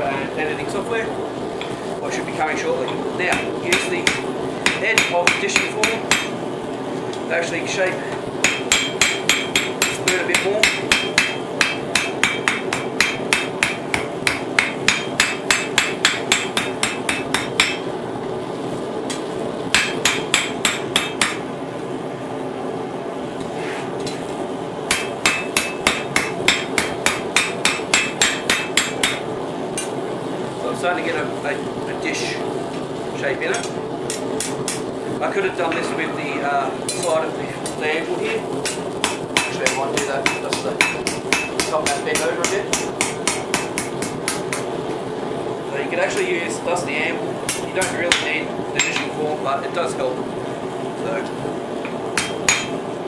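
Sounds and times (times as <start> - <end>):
steady hum: 0.0 - 53.0
hammer striking metal on anvil: 3.3 - 6.4, 8.4 - 17.9, 19.7 - 21.4, 24.9 - 29.2, 33.5 - 34.8, 38.6 - 44.7, 47.5 - 49.1, 52.2 - 52.8.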